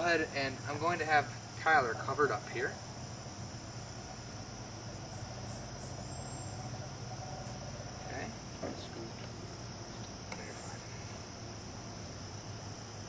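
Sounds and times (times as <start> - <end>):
crickets chirping: 0.0 - 13.0
low steady hum: 0.0 - 13.0.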